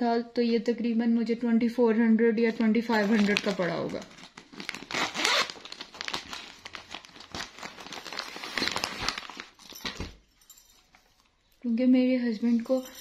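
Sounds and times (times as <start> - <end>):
plastic bag crinkling: 2.5 - 10.2.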